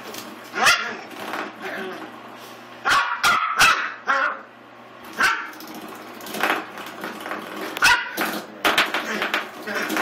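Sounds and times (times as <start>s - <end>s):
puppy barking: 0.6s - 1.0s, 2.8s - 4.5s, 5.2s - 5.6s, 7.8s - 8.2s.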